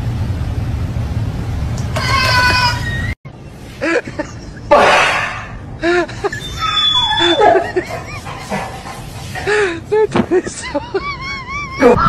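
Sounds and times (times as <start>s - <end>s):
person laughing: 3.8s - 4.9s, 5.8s - 8.8s, 9.4s - 12.0s.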